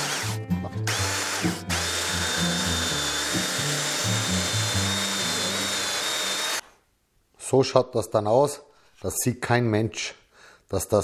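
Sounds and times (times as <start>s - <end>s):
background music with bass: 0.0s - 5.6s
belt sander whining: 0.0s - 6.6s.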